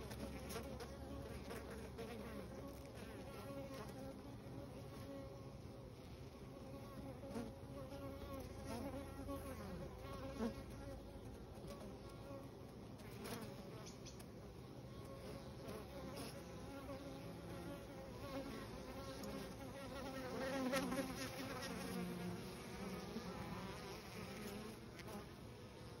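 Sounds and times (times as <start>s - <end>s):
honeybees buzzing: 0.0s - 26.0s.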